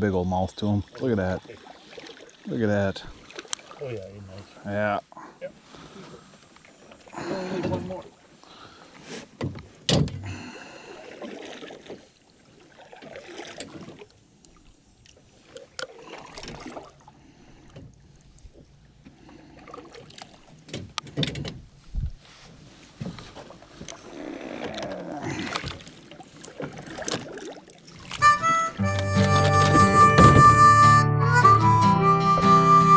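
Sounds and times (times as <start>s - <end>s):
knocks and clunks in metal canoe: 0.0s - 14.2s, 15.1s - 31.0s
low thump: 29.6s - 30.8s.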